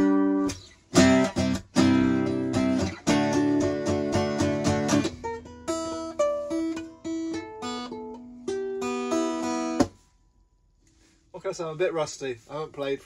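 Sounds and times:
acoustic guitar strumming and picking: 0.0s - 10.1s.

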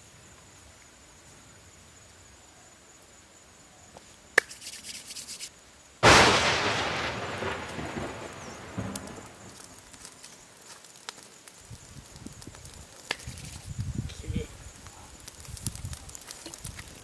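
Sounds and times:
crackling: 4.4s - 17.0s
loud boom: 6.0s - 9.2s
sharp snap: 13.0s - 13.4s.

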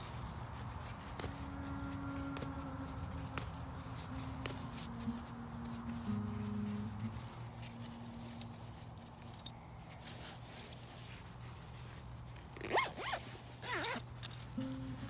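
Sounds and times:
zip rasping: 0.0s - 8.1s, 12.4s - 15.0s
nylon bag rustling: 0.0s - 15.0s.

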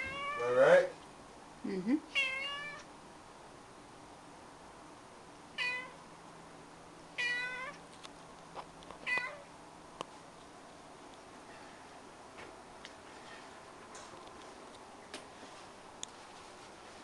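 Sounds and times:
cat meowing: 0.0s - 0.6s, 2.1s - 2.9s, 5.6s - 6.0s, 7.2s - 7.8s, 9.0s - 9.5s.

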